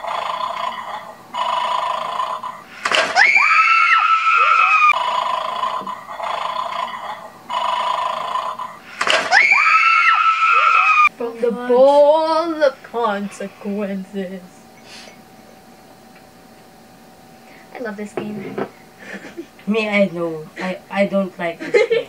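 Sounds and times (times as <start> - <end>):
toy dog electronic snoring: 0.0 - 2.7, 4.9 - 8.9.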